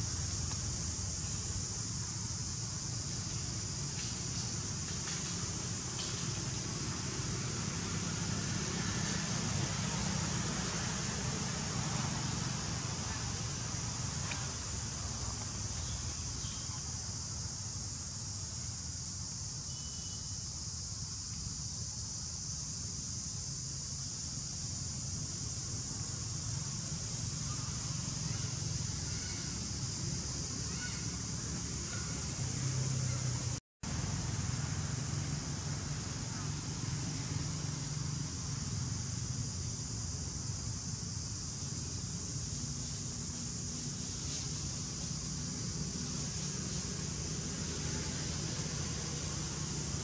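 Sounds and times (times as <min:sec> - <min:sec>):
forest insects droning: 0:00.0 - 0:50.0
high-pitched hiss: 0:00.0 - 0:50.0
faint chirp: 0:19.7 - 0:20.4.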